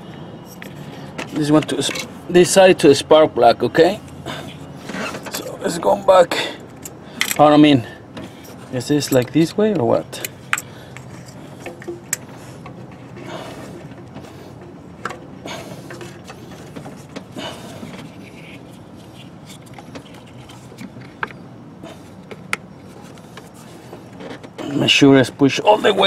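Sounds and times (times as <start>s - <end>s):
hands scraping rubs: 16.0s - 20.9s.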